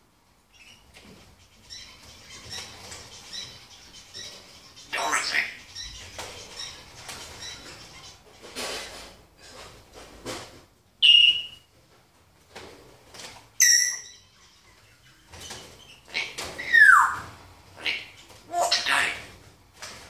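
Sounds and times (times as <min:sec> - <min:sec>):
parrot harsh call: 0:04.9 - 0:05.6, 0:16.2 - 0:19.3
parrot whistling: 0:11.0 - 0:11.6, 0:13.6 - 0:14.2, 0:16.6 - 0:17.2.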